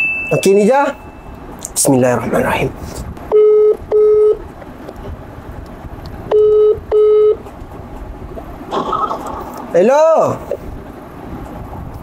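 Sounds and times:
phone ringback double beep: 3.3s - 4.4s, 6.3s - 7.4s.

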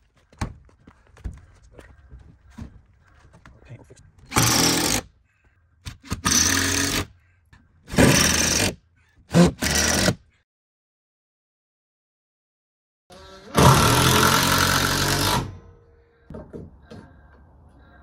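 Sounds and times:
power drill bursts: 7.9s - 10.2s, 13.1s - 15.6s.

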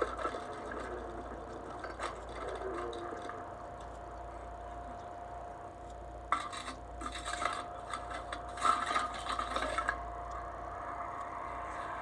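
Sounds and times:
rubbing and scraping: 6.3s - 10.0s
steady tone: 9.9s - 12.0s.

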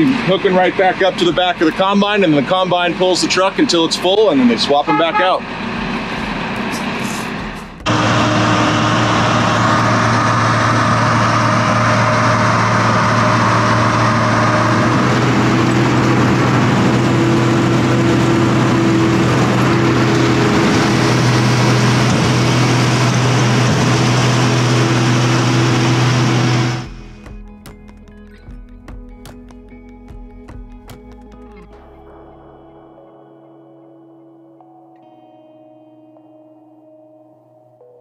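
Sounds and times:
combine harvester droning: 0.0s - 27.2s
higher machine tone: 4.8s - 27.2s.

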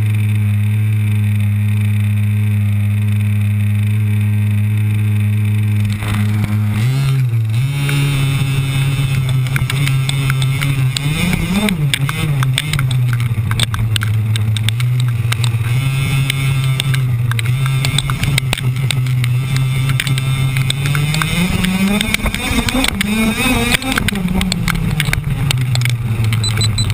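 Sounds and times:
chassis knocks and rattles: 8.8s - 26.9s.

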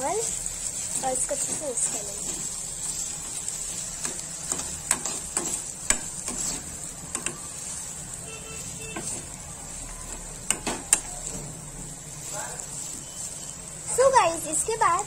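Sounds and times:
metal spoon scraping pan: 4.0s - 7.4s.

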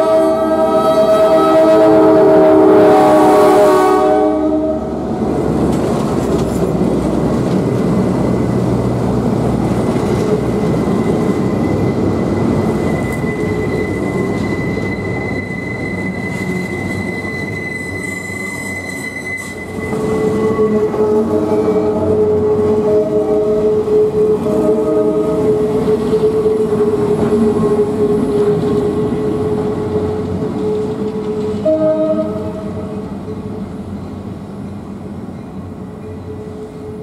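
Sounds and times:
locomotive horn chord: 0.0s - 5.0s, 20.2s - 28.0s, 30.6s - 33.0s
train wheels rumbling on rails: 0.0s - 37.0s
high wheel squeal: 10.3s - 31.8s.

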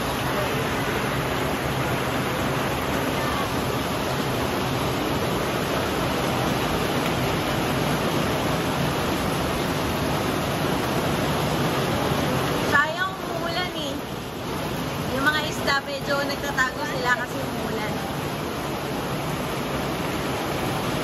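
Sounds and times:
rain pouring off roof eaves: 0.0s - 21.0s.

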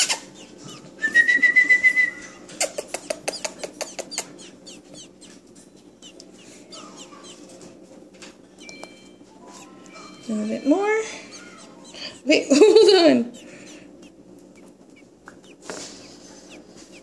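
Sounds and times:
baby bird wavering whistled call: 0.0s - 5.4s, 6.0s - 7.6s, 8.5s - 12.3s
faint high peeps: 0.0s - 7.6s, 8.5s - 12.5s
baby bird sharp clicks: 2.6s - 4.3s.

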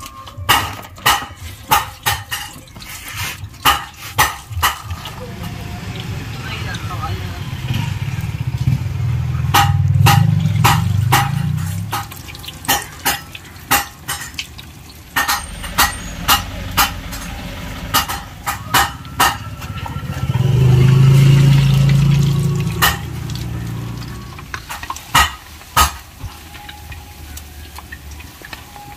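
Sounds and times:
fritters deep-frying in oil: 0.0s - 28.9s
low rumble: 15.2s - 24.4s.

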